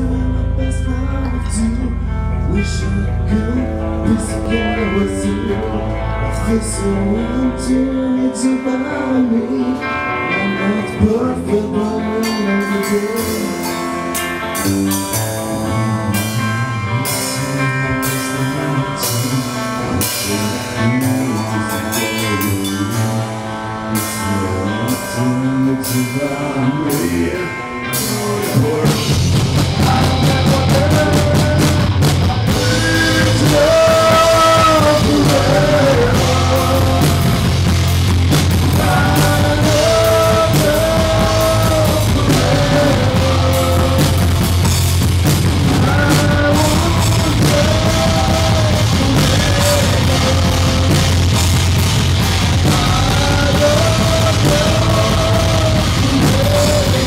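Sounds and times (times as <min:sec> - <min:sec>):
bass guitar: 0:00.0 - 0:57.0
electric guitars: 0:00.0 - 0:57.0.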